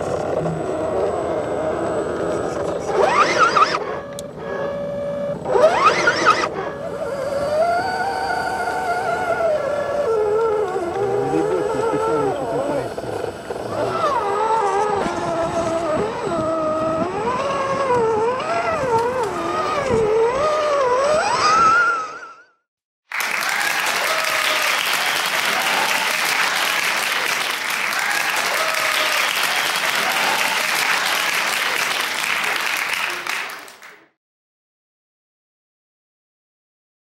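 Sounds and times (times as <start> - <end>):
electric motor whine: 0.0 - 22.4
applause: 23.1 - 34.2.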